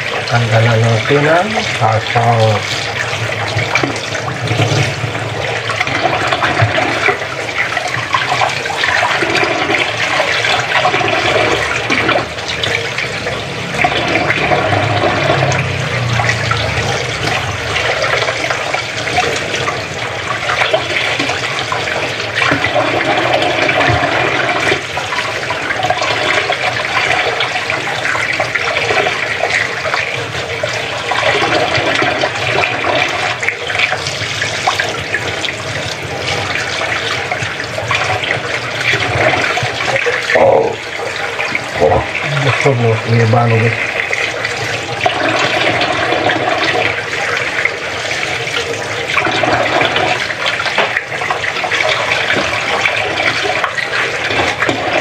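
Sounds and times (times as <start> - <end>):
tap water running into metal sink: 0.0 - 55.0.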